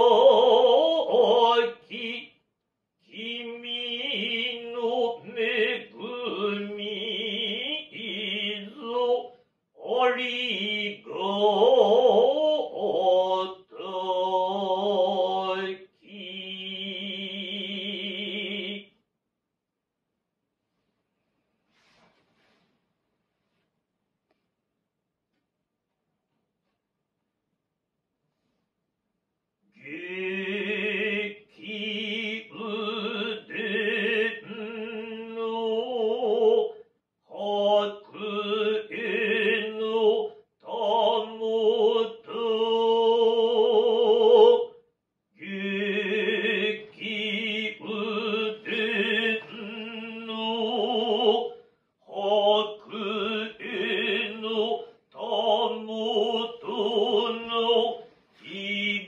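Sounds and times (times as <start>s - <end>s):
man chanting unaccompanied: 0.0s - 2.4s, 3.1s - 18.9s, 29.8s - 44.7s, 45.4s - 59.0s.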